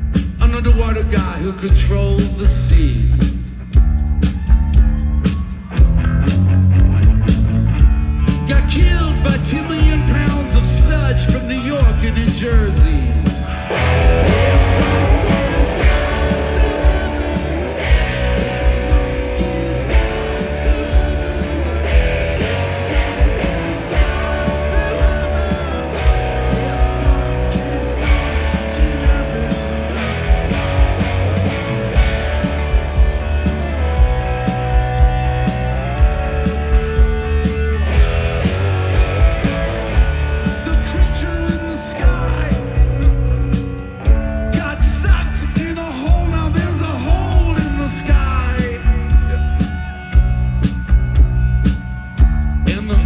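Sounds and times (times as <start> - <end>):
bass guitar: 0.0 - 53.0
electric guitars: 0.0 - 53.0
drum beat: 0.1 - 53.0
person singing: 8.4 - 35.7, 40.4 - 43.3, 44.4 - 49.8, 52.6 - 53.0.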